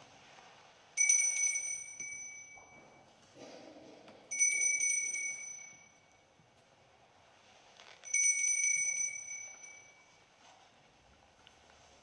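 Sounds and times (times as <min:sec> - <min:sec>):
altar bells ringing: 0:01.0 - 0:03.2, 0:04.3 - 0:06.3, 0:08.0 - 0:10.5.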